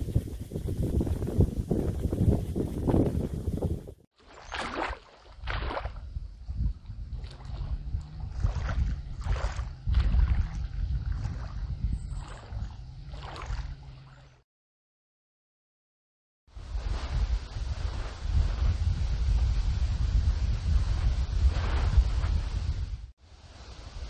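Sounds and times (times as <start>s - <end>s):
wind rumble on microphone: 0.0s - 4.0s, 4.6s - 14.4s, 16.5s - 24.0s
waves lapping against shore: 4.2s - 6.0s, 7.2s - 14.4s, 16.6s - 18.9s.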